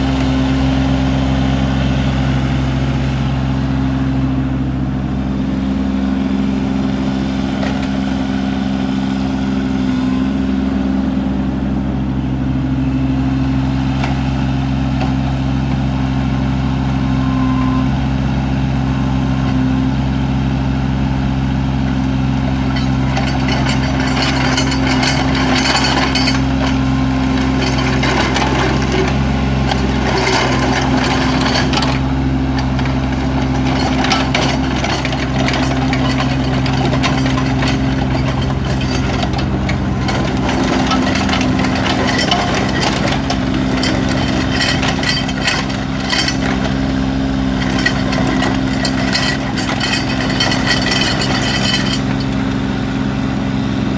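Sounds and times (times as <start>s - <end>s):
diesel excavator engine running: 0.0s - 53.9s
rough noisy grinding: 4.2s - 10.5s, 22.3s - 53.1s.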